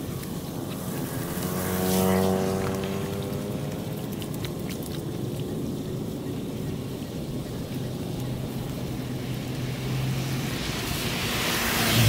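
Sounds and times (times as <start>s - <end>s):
motor scooter passing: 0.0s - 6.1s, 7.6s - 12.0s
water splashes and clicks: 0.0s - 11.9s
tyres hissing through water: 6.1s - 12.0s.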